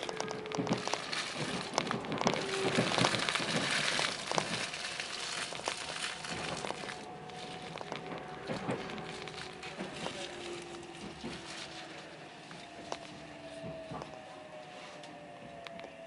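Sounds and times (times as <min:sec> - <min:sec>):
faint steady tones: 0:00.0 - 0:16.0
irregular clicks and crackles: 0:00.0 - 0:16.0.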